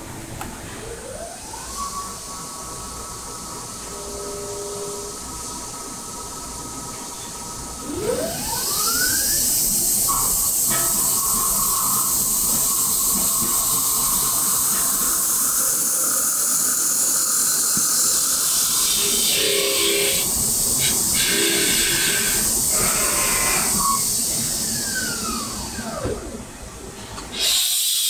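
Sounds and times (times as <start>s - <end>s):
metal lathe whine: 0.1s - 26.5s, 27.3s - 28.0s
high hiss of tool cutting metal: 8.6s - 24.4s, 27.3s - 28.0s.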